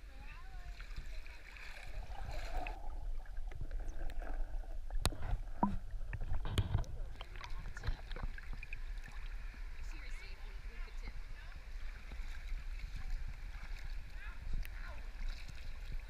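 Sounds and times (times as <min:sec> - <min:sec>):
water sloshing and bubbling: 0:00.0 - 0:16.0
clicks and thumps on camera housing: 0:05.0 - 0:07.1.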